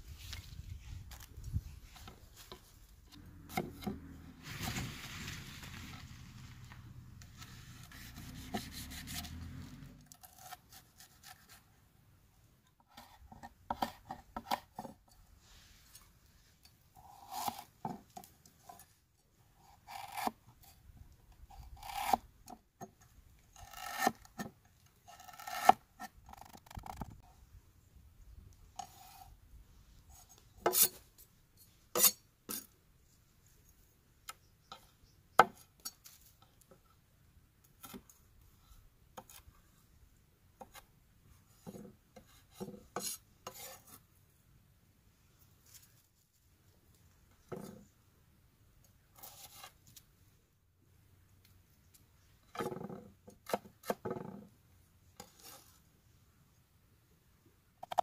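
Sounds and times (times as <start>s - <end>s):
cleaver scraping on cutting board: 7.3s - 11.6s, 30.6s - 31.0s, 31.9s - 32.7s, 41.6s - 44.0s, 55.2s - 55.8s.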